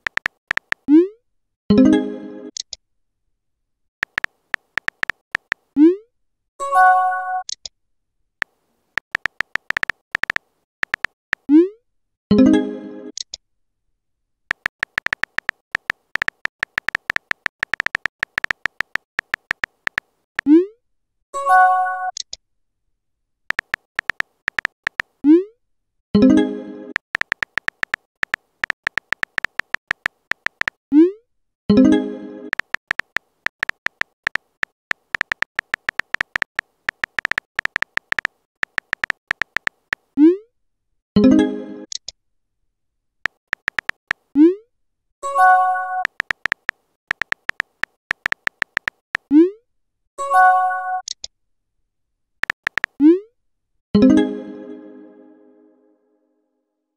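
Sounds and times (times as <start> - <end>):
phone keyboard typing clicks: 0.0 - 0.9, 4.0 - 5.6, 9.0 - 11.4, 14.5 - 20.5, 23.5 - 25.2, 27.0 - 30.8, 32.5 - 40.1, 43.3 - 44.3, 46.0 - 49.3, 52.4 - 53.0.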